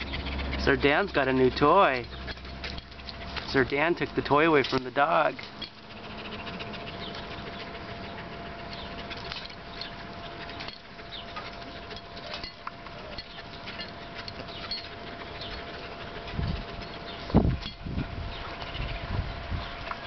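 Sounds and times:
animals scuffling on concrete: 0:00.0 - 0:20.0.

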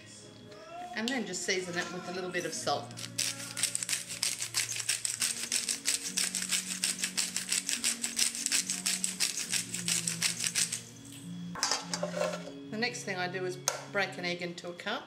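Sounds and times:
salt grinder clicking: 0:02.9 - 0:10.8.

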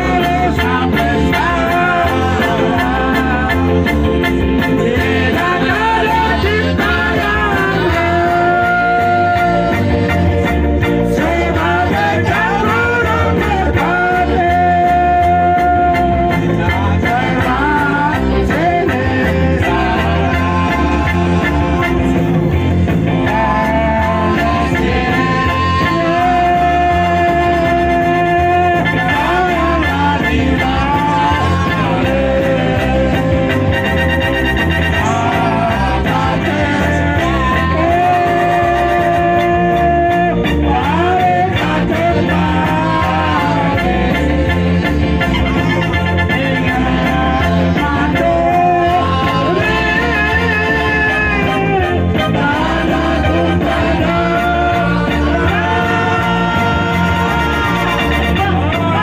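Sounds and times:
dance music with singer: 0:00.0 - 0:59.0.

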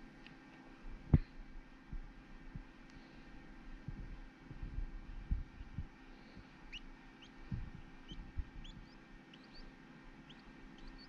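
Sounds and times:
chick peeping: 0:06.7 - 0:11.0.

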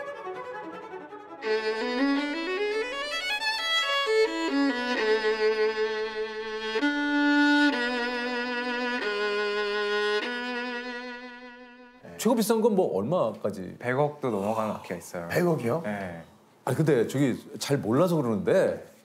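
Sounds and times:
solo violin melody: 0:00.0 - 0:12.0.

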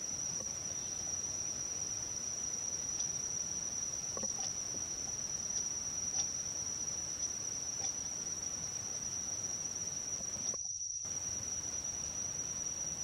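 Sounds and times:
high-pitched insect chorus: 0:00.0 - 0:13.0
faint ticks: 0:02.9 - 0:03.2, 0:04.1 - 0:06.4, 0:07.2 - 0:08.1.

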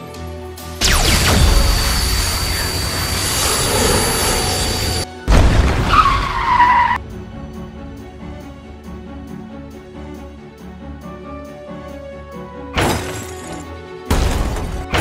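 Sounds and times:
background music: 0:00.0 - 0:15.0
energy beam blast with whine: 0:00.8 - 0:06.5
car tyres screeching: 0:02.4 - 0:05.1, 0:05.8 - 0:07.1.

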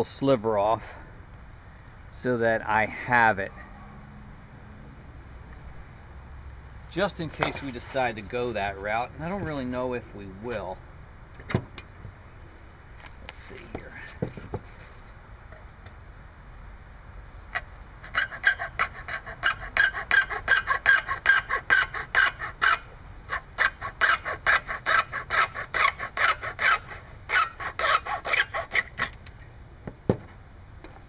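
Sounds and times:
hacksaw cutting plastic: 0:07.3 - 0:08.2, 0:17.6 - 0:29.3.

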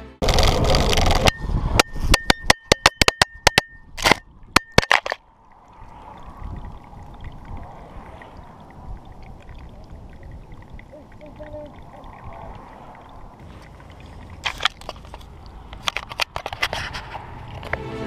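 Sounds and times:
faint wind hiss: 0:05.2 - 0:18.0.

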